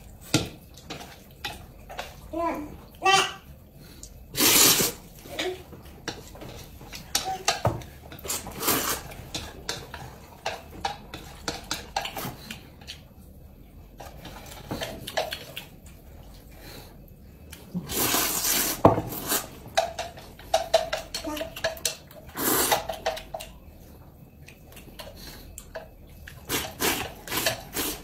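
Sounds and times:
noodles being slurped: 0:04.3 - 0:05.1, 0:08.2 - 0:09.4, 0:17.7 - 0:19.6, 0:22.3 - 0:23.3, 0:26.3 - 0:28.0.

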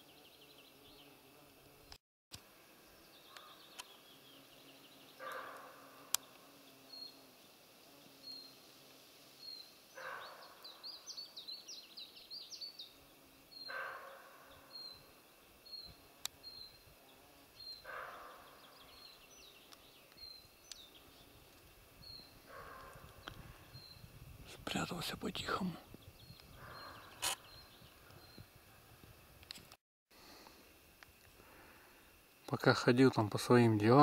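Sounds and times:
small bird singing: 0:02.9 - 0:07.3, 0:07.9 - 0:08.6, 0:09.4 - 0:28.5
hoarse bark-like calls: 0:05.2 - 0:06.0, 0:10.0 - 0:10.6, 0:13.7 - 0:14.6, 0:17.8 - 0:18.7, 0:22.5 - 0:23.1.

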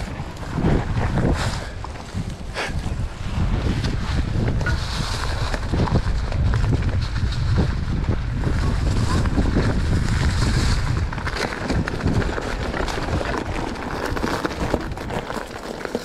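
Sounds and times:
bike tyres on dirt trail: 0:00.0 - 0:16.0
wind buffeting microphone: 0:00.0 - 0:16.0
bike rattling clicks and knocks: 0:03.6 - 0:16.0.

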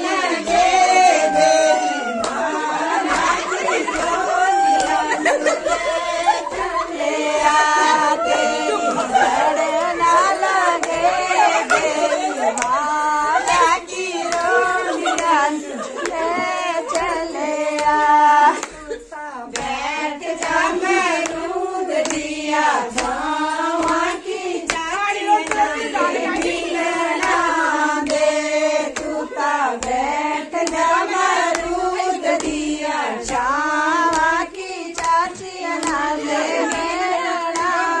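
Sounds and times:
women singing folk song: 0:00.0 - 0:38.0
hand clapping: 0:02.2 - 0:05.4, 0:10.7 - 0:15.4, 0:16.0 - 0:38.0.

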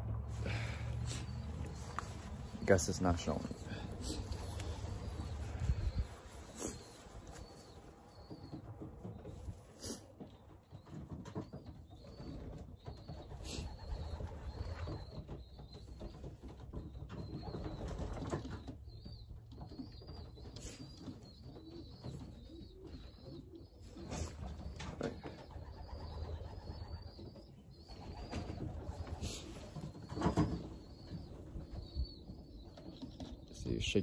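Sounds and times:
pigeons cooing: 0:00.3 - 0:33.4.

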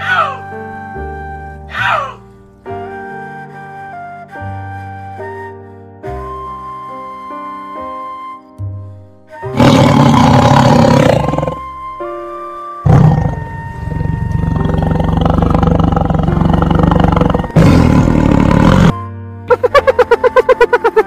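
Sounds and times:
background music: 0:00.0 - 0:21.0
tigers roaring: 0:09.6 - 0:11.6, 0:12.9 - 0:18.9.

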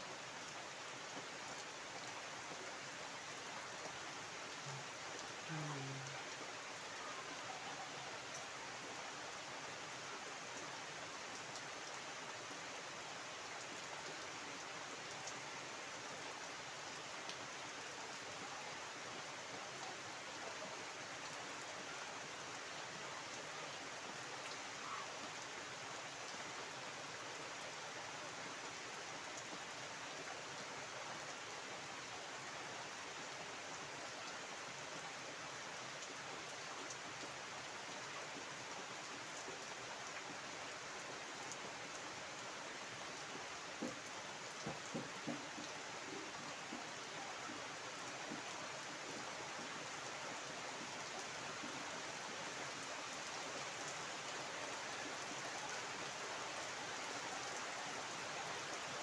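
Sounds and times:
heavy rain on water and foliage: 0:00.0 - 0:59.0.

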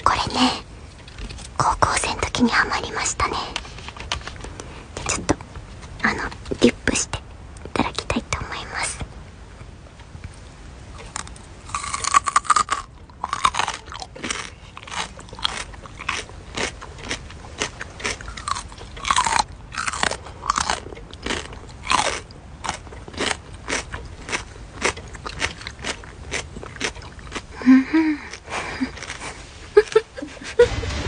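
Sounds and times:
person chewing crunchy food: 0:11.0 - 0:30.0.

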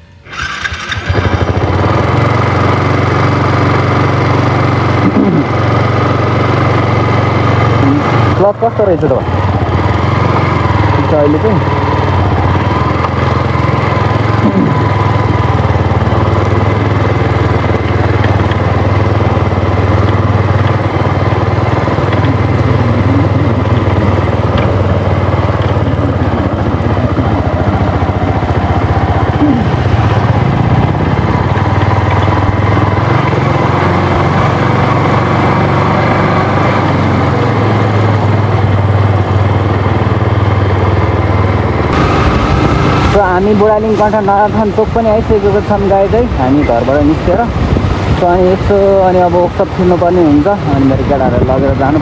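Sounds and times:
motorcycle engine running: 0:00.0 - 0:52.0
road and wind noise: 0:00.0 - 0:52.0.

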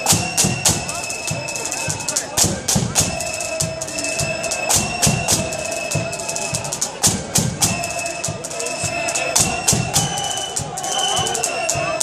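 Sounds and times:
bass drum beats: 0:00.0 - 0:12.0
flutes playing long notes: 0:00.0 - 0:12.0
snare drum beats: 0:00.0 - 0:12.0.

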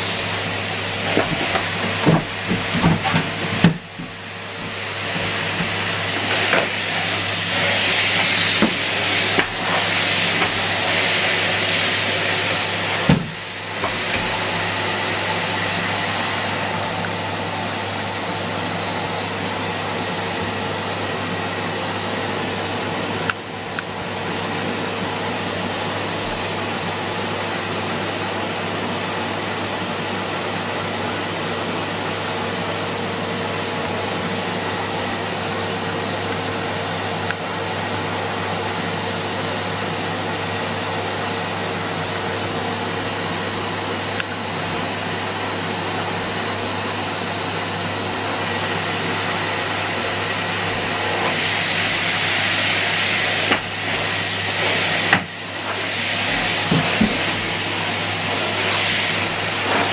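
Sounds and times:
vacuum cleaner running: 0:00.0 - 0:59.9.

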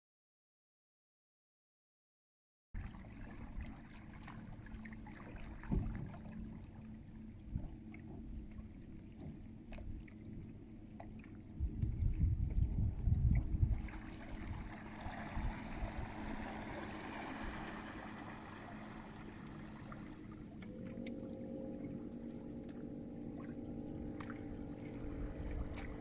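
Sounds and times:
water washing against hull: 0:02.8 - 0:26.0
electric outboard motor whine: 0:03.0 - 0:26.0
higher whine: 0:10.1 - 0:26.0.

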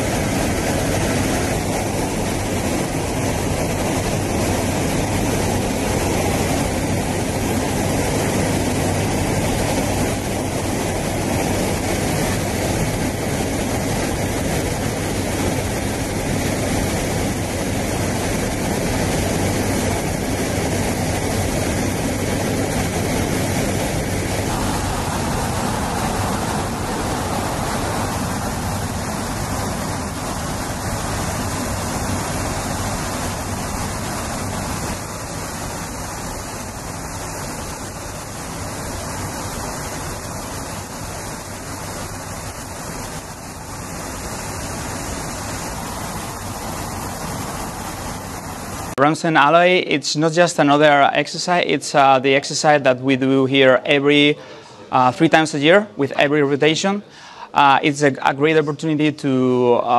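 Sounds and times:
rushing air: 0:00.0 - 0:49.8, 0:53.8 - 0:56.2
aircraft engines droning: 0:00.0 - 0:59.5.

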